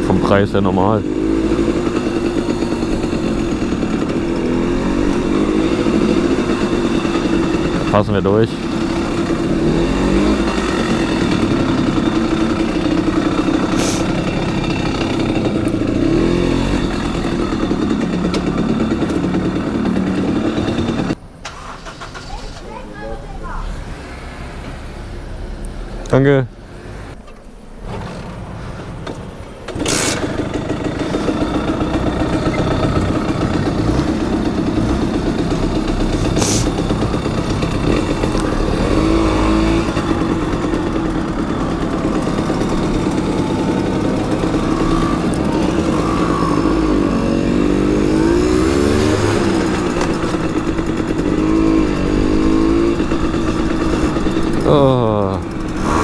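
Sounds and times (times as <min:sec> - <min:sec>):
two-stroke moped engine revving: 0:00.0 - 0:22.4, 0:29.7 - 0:56.0.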